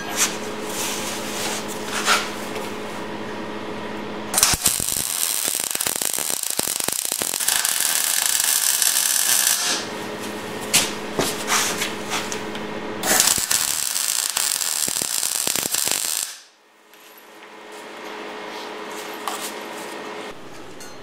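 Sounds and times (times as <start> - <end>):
power tool humming: 4.3 - 11.2, 12.3 - 16.5
welding arc crackling: 4.3 - 16.6.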